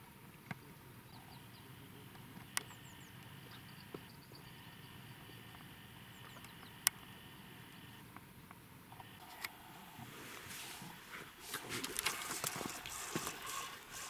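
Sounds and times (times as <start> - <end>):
sharp clicks: 5.5 - 7.1.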